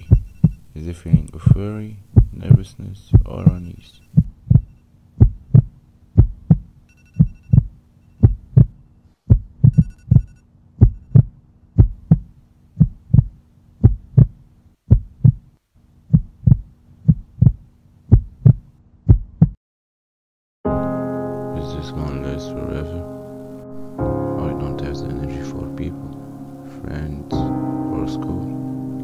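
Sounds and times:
heartbeat thumping: 0.0s - 15.5s, 16.1s - 19.6s
low steady hum: 0.0s - 18.8s.

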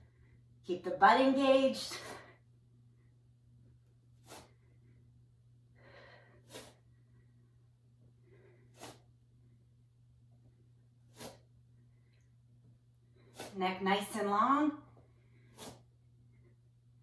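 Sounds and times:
woman breathing: 0.0s - 0.6s, 4.1s - 9.7s
low steady hum: 0.0s - 17.0s.

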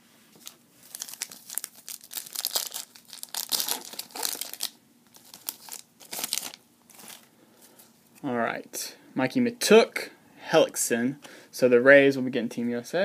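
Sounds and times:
foil wrapper tearing and crinkling: 0.8s - 7.2s.

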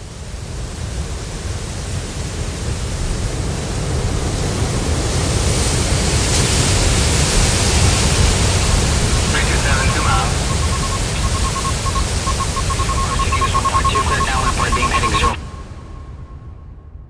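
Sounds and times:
hurricane wind rushing: 6.9s - 16.1s.

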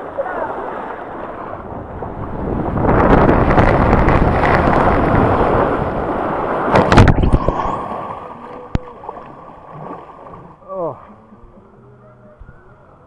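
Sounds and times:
rushing water: 0.0s - 11.4s
wind buffeting microphone: 1.3s - 8.1s
loud thumps: 6.7s - 7.7s.

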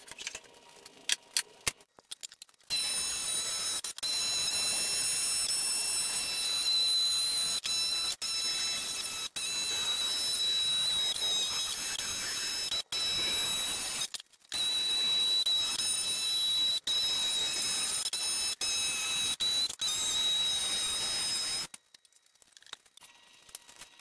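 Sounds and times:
jigsaw cutting wood: 2.7s - 21.7s.

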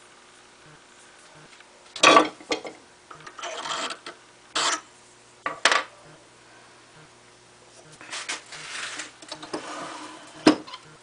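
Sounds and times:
faint steady hum: 0.0s - 11.0s
metallic clanks and scrapes: 2.0s - 4.9s.

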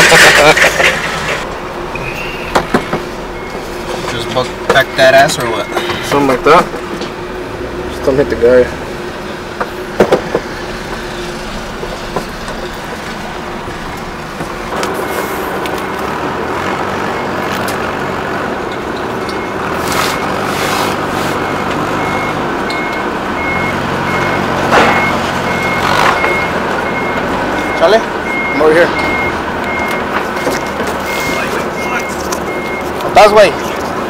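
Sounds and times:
vehicle engine running: 0.0s - 34.0s
reversing alarm beeping: 1.8s - 6.8s, 11.3s - 17.6s, 18.7s - 33.8s.

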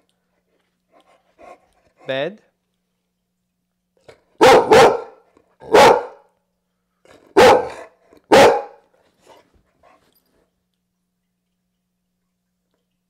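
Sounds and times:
dog barking: 4.4s - 6.3s, 7.3s - 8.8s.

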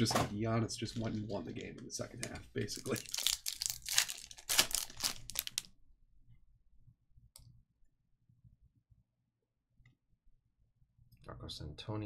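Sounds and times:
foil wrapper tearing and crinkling: 2.8s - 5.7s.

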